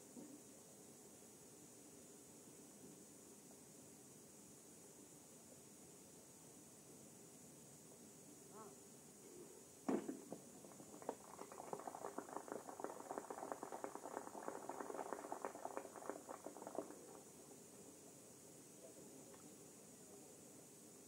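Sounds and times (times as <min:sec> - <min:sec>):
shotgun shot: 0:09.9 - 0:10.4
spectators applauding: 0:10.4 - 0:17.3.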